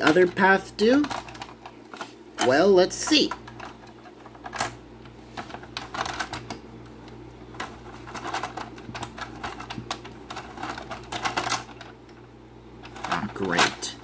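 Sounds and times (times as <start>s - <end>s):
plastic toy clicking and rattling: 0.0s - 4.8s, 5.4s - 6.6s, 7.5s - 12.2s, 12.8s - 14.0s.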